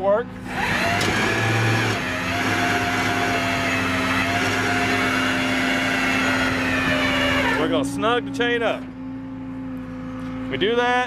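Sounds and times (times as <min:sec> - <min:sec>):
hydraulic drive whine: 0:00.4 - 0:07.9.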